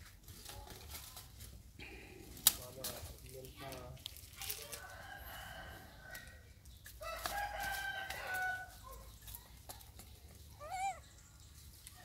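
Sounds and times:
animal calls: 10.6s - 11.2s.

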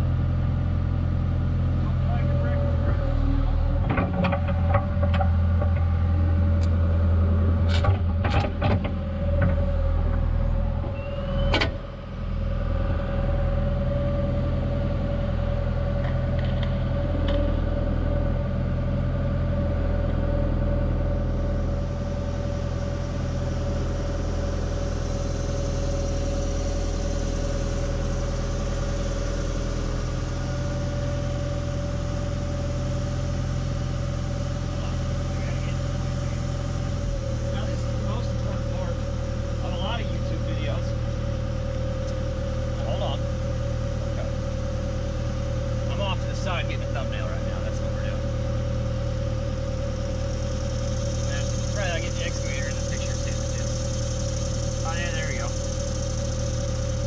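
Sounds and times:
diesel engine running with whine: 0.0s - 57.0s
sharp clicks and knocks: 7.7s - 9.6s.

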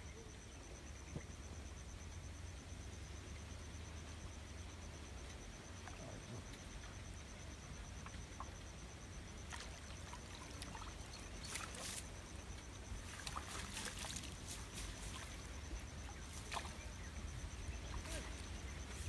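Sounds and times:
water splashing and dripping: 9.4s - 12.4s, 13.0s - 17.0s.

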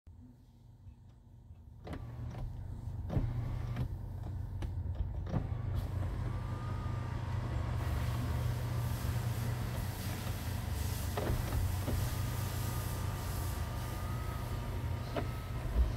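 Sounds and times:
sunroof motor humming: 5.2s - 15.9s.

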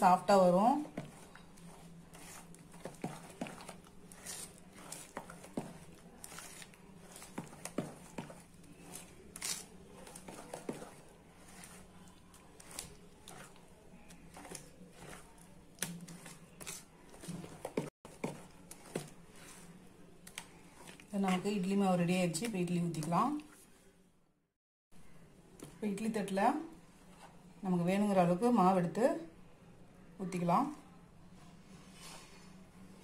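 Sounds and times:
spoon stirring thick batter: 0.0s - 23.9s.

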